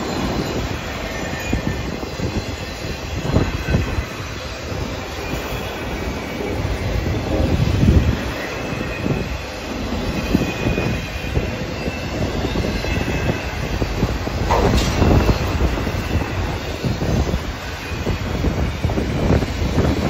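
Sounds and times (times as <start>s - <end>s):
high-pitched wheel squeal: 0.0s - 20.0s
train wheels rumbling on rail: 0.0s - 20.0s
metal clank: 14.4s - 15.9s.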